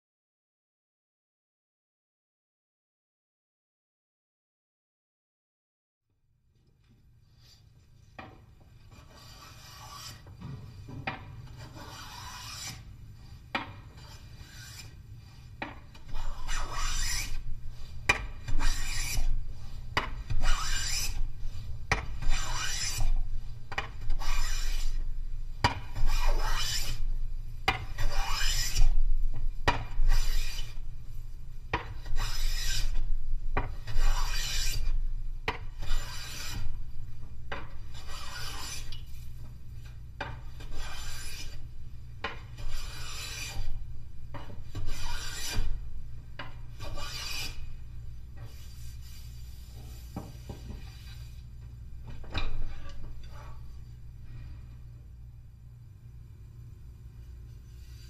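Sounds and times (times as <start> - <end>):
hand plane swishing through wood: 8.9 - 10.3, 11.6 - 12.9, 13.9 - 17.4, 18.1 - 19.3, 20.3 - 21.2, 22.2 - 23.1, 24.1 - 25.0, 26.0 - 27.0, 28.0 - 28.9, 30.1 - 30.8, 32.0 - 33.0, 33.9 - 34.9, 35.8 - 36.7, 38.0 - 39.0, 40.6 - 41.6, 42.6 - 43.6, 44.7 - 45.7, 46.8 - 47.7.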